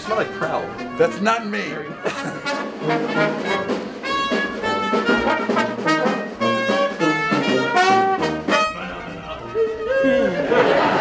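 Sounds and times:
brass band playing: 0.0 - 11.0.

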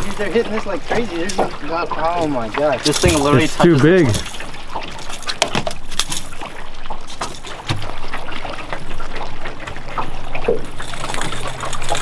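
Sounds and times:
water splashing and lapping: 0.0 - 12.0.

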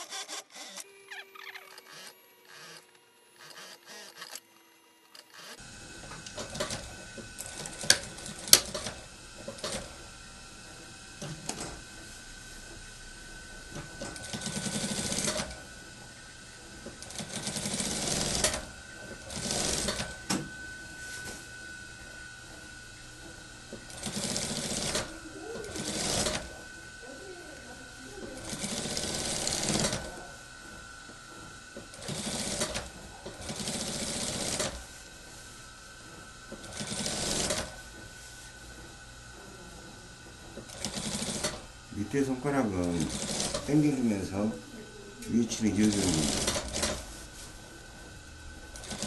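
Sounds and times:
sewing machine stitching: 0.0 - 2.8, 3.4 - 4.4, 5.1 - 10.0, 13.7 - 15.7, 16.8 - 20.4, 23.7 - 26.6, 28.2 - 30.2, 31.8 - 34.9, 36.5 - 37.8, 40.6 - 44.4, 45.2 - 47.1, 48.7 - 49.0
faint high machine hum: 0.0 - 49.0
steady high whine: 0.0 - 49.0.

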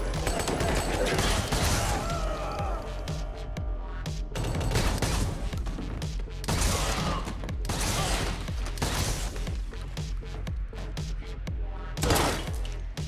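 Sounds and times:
rapid gunfire: 0.0 - 2.2, 4.3 - 5.6
electronic score with heavy bass: 2.6 - 4.4.

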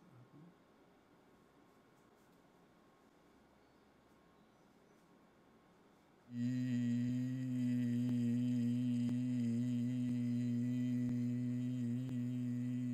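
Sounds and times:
person holding low vowel: 6.3 - 12.9.

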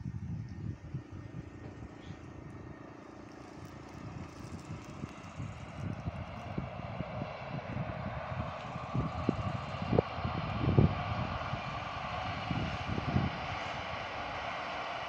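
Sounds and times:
wind buffeting microphone: 0.0 - 15.0
train wheels rumbling on rails: 0.9 - 7.2.

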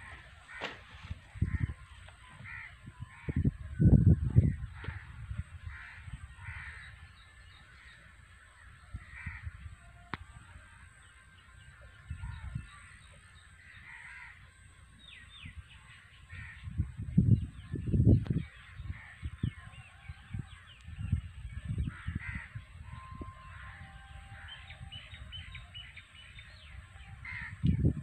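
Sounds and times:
crows cawing: 0.0 - 3.5, 4.4 - 9.7, 12.7 - 14.6, 16.3 - 16.7, 21.9 - 24.6, 27.2 - 27.6
low wind rumble on microphone: 0.0 - 28.0.

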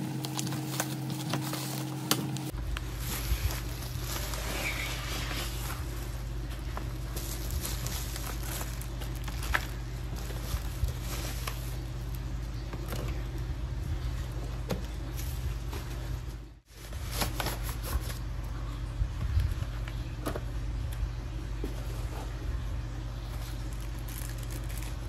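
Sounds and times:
plastic packaging crinkling: 0.0 - 12.4, 23.2 - 25.0
steady low hum: 0.0 - 25.0.

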